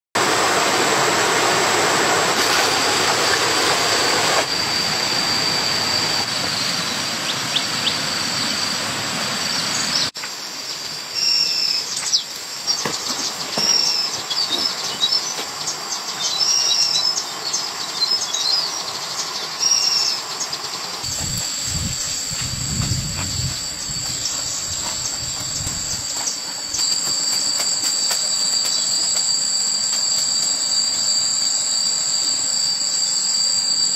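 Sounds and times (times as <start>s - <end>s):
high-pitched insect drone: 0.3s - 33.9s
bird chirps: 6.5s - 8.7s, 11.2s - 21.2s.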